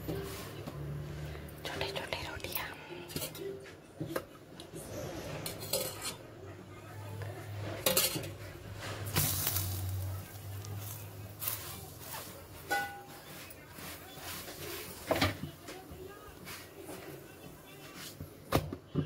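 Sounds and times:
metal utensils clinking on pots: 3.0s - 4.2s, 5.0s - 6.3s, 7.5s - 17.0s.

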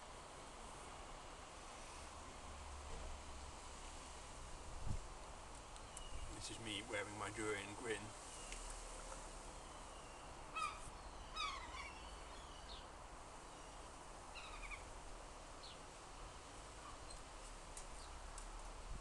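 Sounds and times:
steady outdoor hiss: 0.0s - 19.0s
birds calling: 5.6s - 15.0s.

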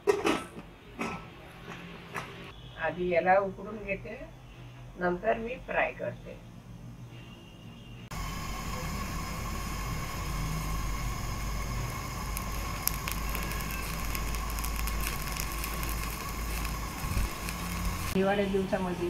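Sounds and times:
crackles: 8.1s - 18.2s
gas burner flame rumble: 8.1s - 19.0s.

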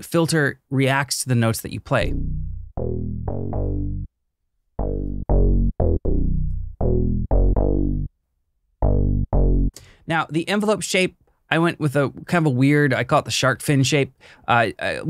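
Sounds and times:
synth bass line: 2.0s - 4.1s, 4.8s - 8.1s, 8.8s - 9.7s.

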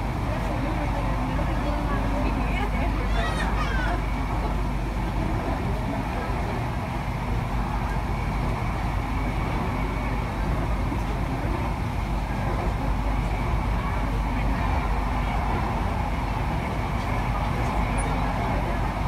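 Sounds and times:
train rumbling inside coach: 0.0s - 19.0s.

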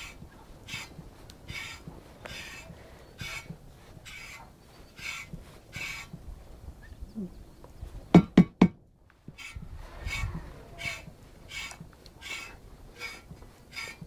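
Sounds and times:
brush swishing through cat fur: 0.0s - 6.4s.

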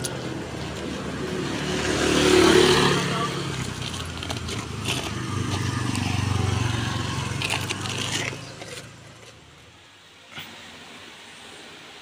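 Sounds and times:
rustling and scraping: 3.3s - 9.7s.

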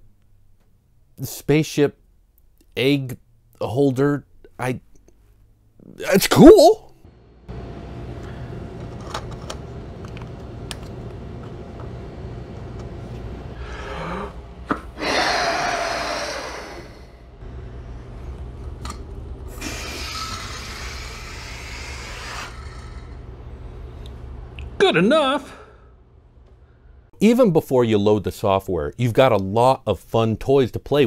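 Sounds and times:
air rushing out of balloon: 19.5s - 23.2s
person blowing into balloon: 19.5s - 23.2s.

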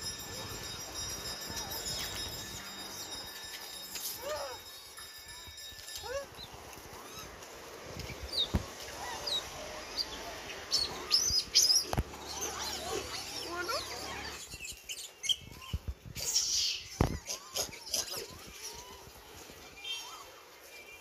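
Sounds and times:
monkeys squeaking and chattering: 5.9s - 7.4s, 8.2s - 20.4s
monkey shrill squeal: 10.8s - 19.2s.

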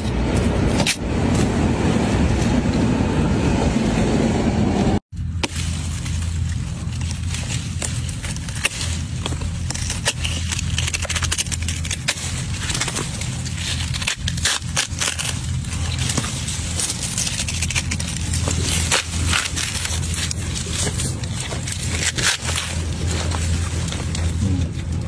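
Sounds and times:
steady low hum: 0.0s - 25.0s
watermelon rind cracking: 5.2s - 25.0s.

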